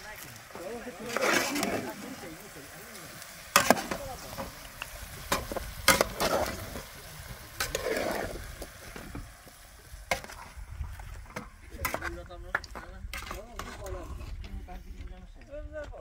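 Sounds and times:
food frying and sizzling: 0:00.0 - 0:16.0
utensil scraping pan: 0:00.6 - 0:02.3, 0:03.5 - 0:04.6, 0:05.2 - 0:09.3, 0:10.1 - 0:15.0.

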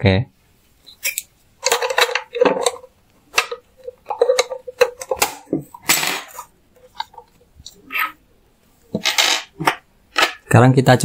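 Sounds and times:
plastic scrape: 0:08.9 - 0:10.5.

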